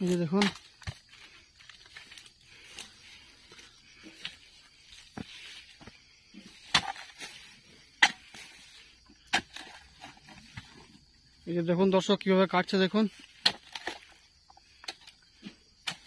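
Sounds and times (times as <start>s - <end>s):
chisel chopping palm stalks: 0.0s - 1.0s, 6.6s - 7.4s, 8.0s - 8.4s, 9.3s - 10.1s, 13.3s - 14.1s.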